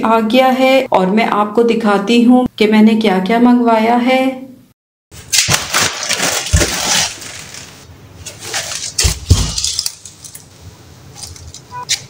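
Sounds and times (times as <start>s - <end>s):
plastic bags rustling: 5.2s - 11.7s
bags thumping down: 5.3s - 7.8s.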